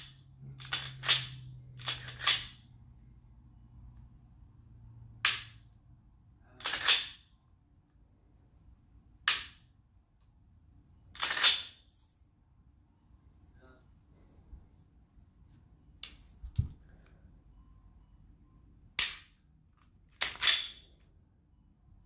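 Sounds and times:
pistol slide racking: 0:00.6 - 0:02.6, 0:06.6 - 0:07.2, 0:11.2 - 0:11.8, 0:20.1 - 0:20.8.

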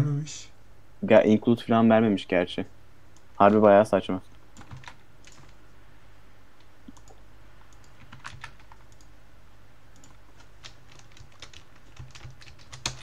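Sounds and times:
typing on a keyboard: 0:04.6 - 0:05.6, 0:06.9 - 0:09.1, 0:10.0 - 0:13.0.

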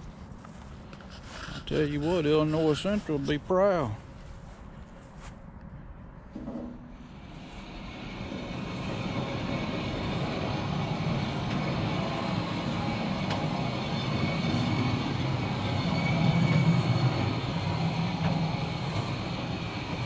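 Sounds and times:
sawmill head rolling on steel track: 0:06.4 - 0:20.0.

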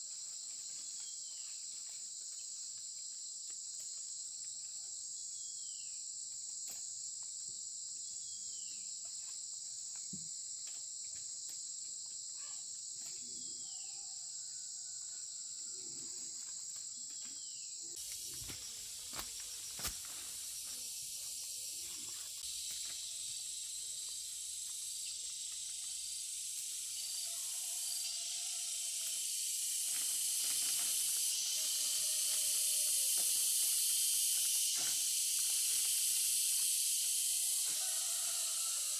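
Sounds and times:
insects chorus: 0:00.0 - 0:38.9
even hiss: 0:18.0 - 0:38.9.

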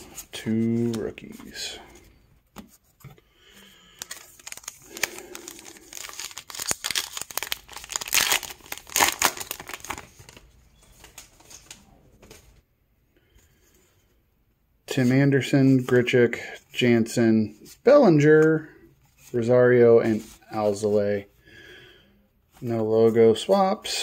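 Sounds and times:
plastic wrapper crinkling and tearing: 0:04.0 - 0:10.5.

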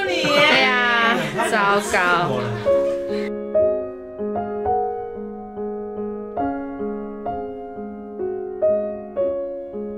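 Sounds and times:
gentle solo piano: 0:02.6 - 0:09.9.

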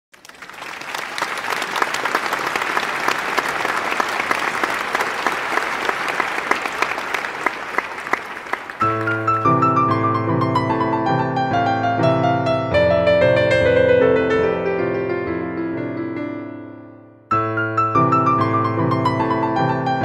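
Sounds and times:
crowd applauding: 0:00.1 - 0:10.7
piano music: 0:08.8 - 0:20.0.

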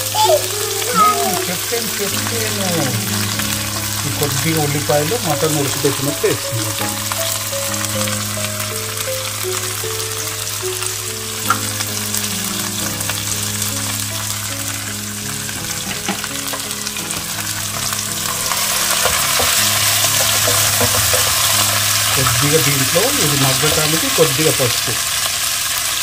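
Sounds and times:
vegetables sizzling in oil: 0:00.0 - 0:26.0
spatula stirring: 0:17.0 - 0:22.9.

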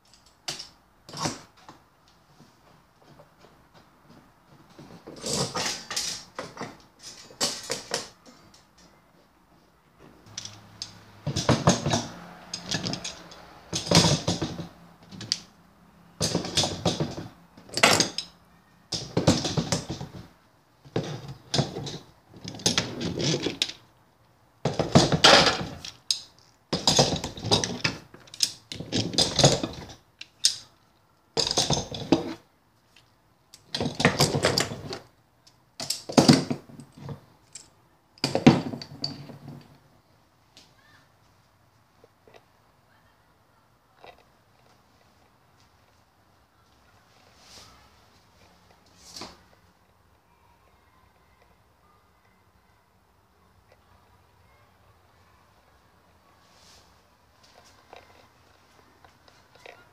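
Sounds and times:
metal clamps clattering: 0:05.1 - 0:08.8, 0:10.3 - 0:15.4, 0:16.2 - 0:18.4, 0:24.7 - 0:30.7, 0:31.4 - 0:32.4, 0:33.6 - 0:35.0.

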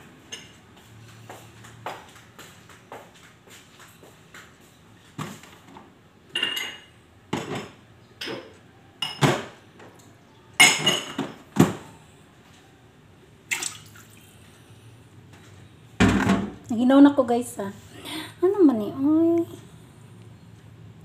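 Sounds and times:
dishes and cutlery clattering: 0:00.3 - 0:00.6, 0:06.3 - 0:09.6, 0:10.6 - 0:11.8.

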